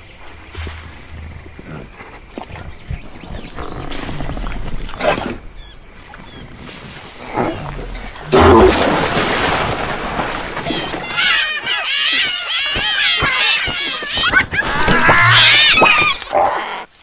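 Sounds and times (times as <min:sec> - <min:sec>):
loud splashing rush: 0:08.4 - 0:11.1.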